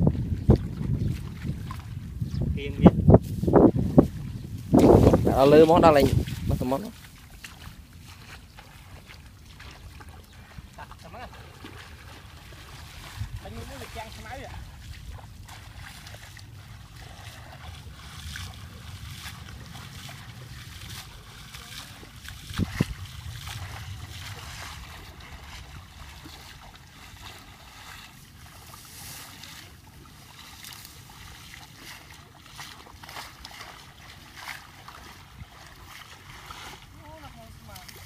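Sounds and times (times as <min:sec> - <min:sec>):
person wading through water: 0:00.0 - 0:02.3, 0:03.1 - 0:38.0
steady low rumble: 0:09.8 - 0:29.2.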